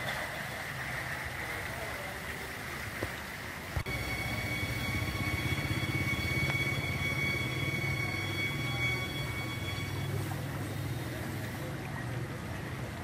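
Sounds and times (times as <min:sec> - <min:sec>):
thin high-pitched whines: 0:03.8 - 0:11.2.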